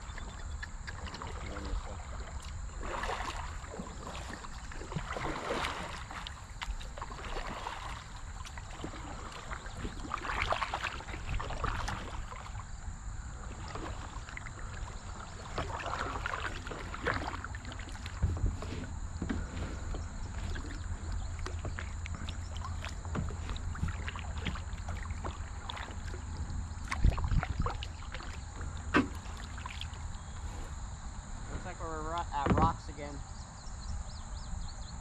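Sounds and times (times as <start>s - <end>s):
kayak paddle splashing in water: 0.0s - 30.8s
steady low rumble: 0.0s - 35.0s.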